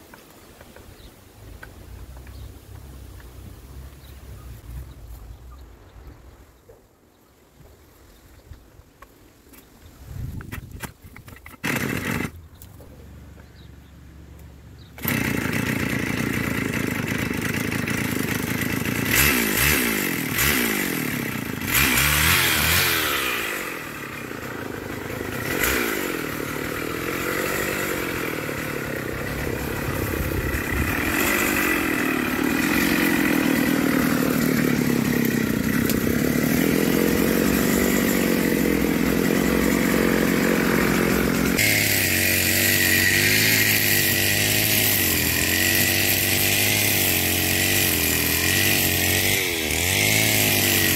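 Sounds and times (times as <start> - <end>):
trimmer line cutting dry grass: 10.3 - 12.9, 14.9 - 50.9
brushcutter engine revving: 10.8 - 12.4, 15.0 - 50.9.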